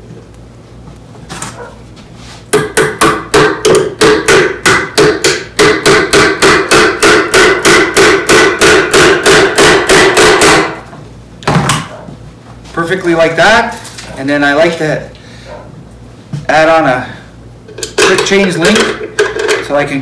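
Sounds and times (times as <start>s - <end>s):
hammer striking nail into wood: 2.5s - 10.8s.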